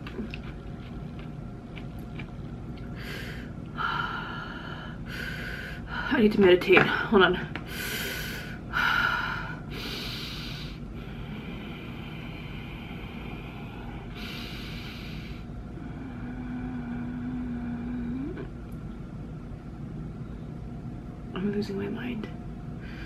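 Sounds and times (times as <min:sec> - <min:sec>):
woman breathing deeply: 0:02.9 - 0:06.2, 0:07.6 - 0:18.3, 0:22.8 - 0:23.0
woman humming: 0:15.8 - 0:18.7.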